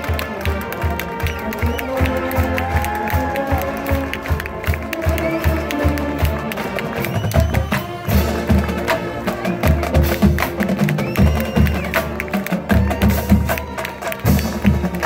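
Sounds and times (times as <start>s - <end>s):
drumline beating busy rhythm: 0.0s - 15.0s.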